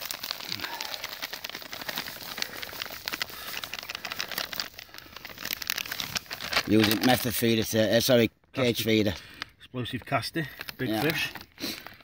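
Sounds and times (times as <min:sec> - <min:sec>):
hands mixing wet groundbait: 0:00.0 - 0:07.4.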